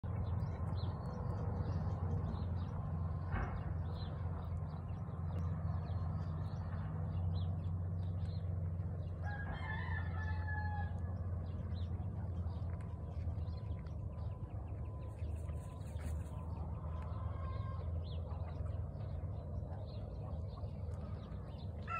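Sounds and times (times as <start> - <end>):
small birds chirping: 0.0 - 21.9
steady low hum: 0.0 - 21.9
rooster crowing: 9.2 - 11.1.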